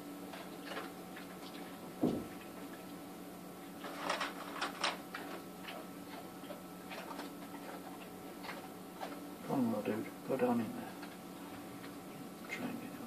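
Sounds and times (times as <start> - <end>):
steady low hum: 0.0 - 13.0
knock: 2.0 - 2.3.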